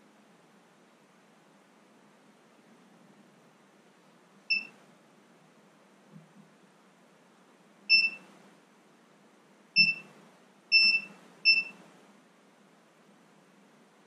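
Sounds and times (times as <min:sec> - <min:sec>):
multimeter continuity beeps: 0:04.5 - 0:04.8, 0:07.9 - 0:08.3, 0:09.8 - 0:10.1, 0:10.7 - 0:11.8.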